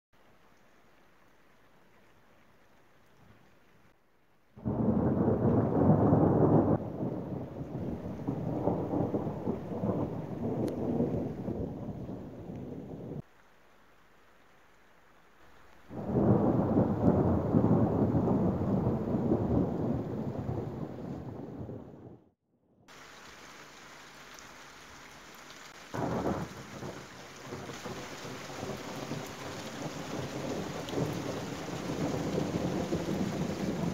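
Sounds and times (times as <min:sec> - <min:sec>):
rain falling: 0:00.2 - 0:22.2, 0:22.9 - 0:33.9
thunder rumbling: 0:04.6 - 0:13.2, 0:15.9 - 0:22.3, 0:25.7 - 0:33.9.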